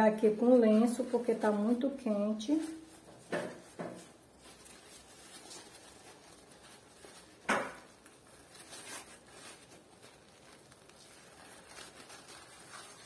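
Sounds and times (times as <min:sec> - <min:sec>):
paper napkin rustling: 0:00.0 - 0:13.0
bread roll breaking open: 0:05.5 - 0:13.0.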